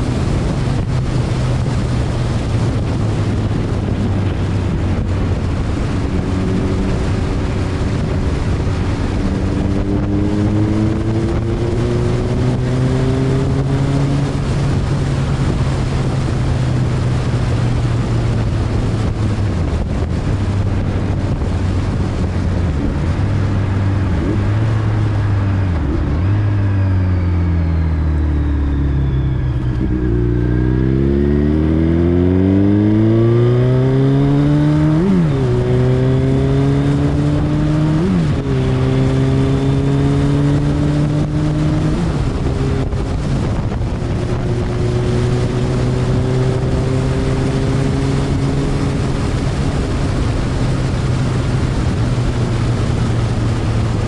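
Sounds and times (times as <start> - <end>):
steady rushing noise: 0.0 - 54.0.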